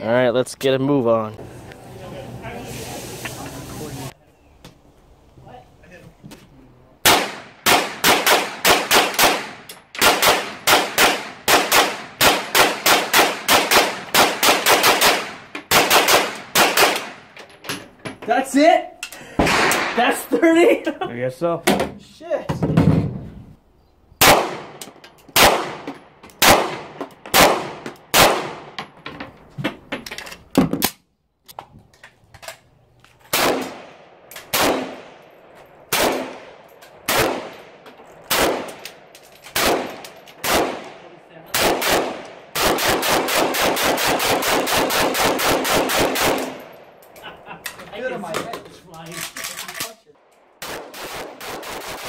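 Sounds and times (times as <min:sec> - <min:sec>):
rifle shots with echo: 0:07.0 - 0:17.3, 0:19.4 - 0:20.1, 0:24.2 - 0:24.8, 0:25.4 - 0:28.8, 0:33.3 - 0:46.8, 0:50.5 - 0:52.0
rapid rifle fire: 0:07.1 - 0:17.2, 0:41.6 - 0:46.6, 0:50.6 - 0:52.0.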